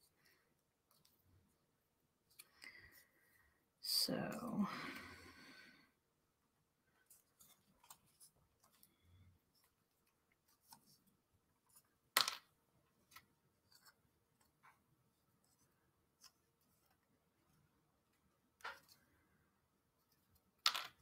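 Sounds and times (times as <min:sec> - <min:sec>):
wooden puzzle pieces clicking: 0:12.1 - 0:12.5, 0:20.6 - 0:21.0.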